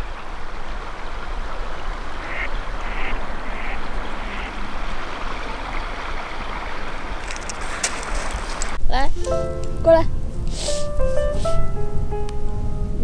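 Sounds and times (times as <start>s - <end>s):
river flowing: 0.0s - 8.8s
duck quacking: 1.5s - 7.2s.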